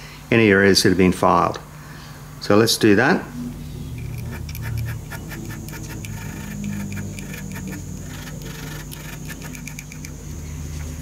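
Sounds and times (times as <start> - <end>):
steady low hum: 0.9 - 11.0
hand file scraping metal: 3.9 - 10.2.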